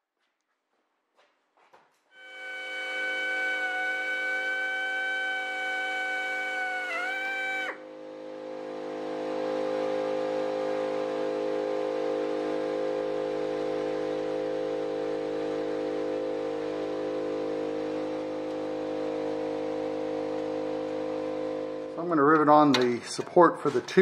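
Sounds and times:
machine motor humming: 2.2s - 11.2s.

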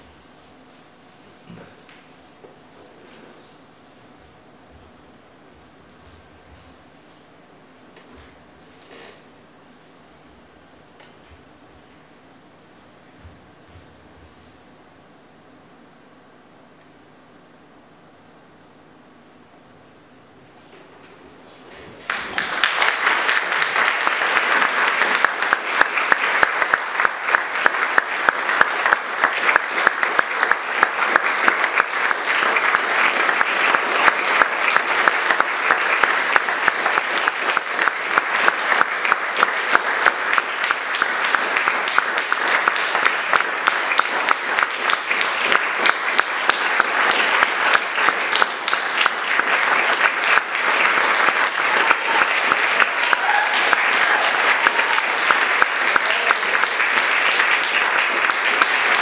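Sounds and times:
audience applauding: 22.0s - 59.0s.

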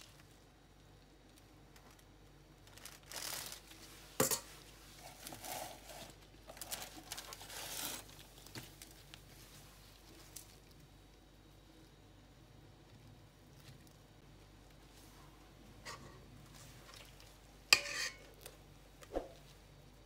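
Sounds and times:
spatula spreading cream: 15.9s - 18.6s.

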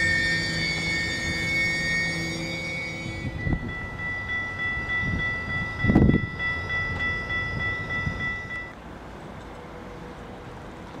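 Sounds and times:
level crossing bell ringing: 0.0s - 8.8s
train wheels rumbling over rails: 0.0s - 11.0s.

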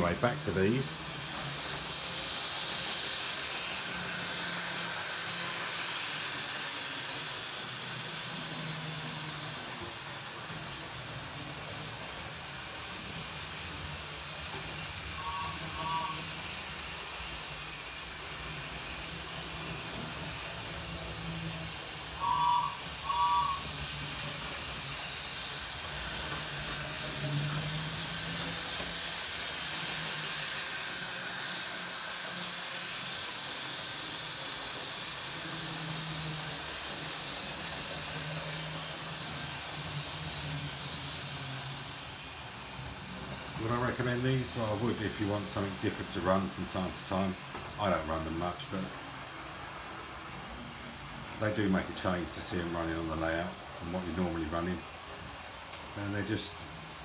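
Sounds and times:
model train motors whirring: 0.0s - 57.0s
short high beeps: 15.2s - 16.4s, 22.2s - 23.8s.

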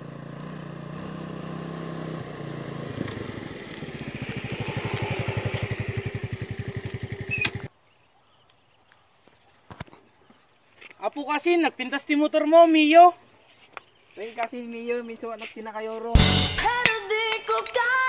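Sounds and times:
motor scooter passing by: 0.0s - 7.7s.

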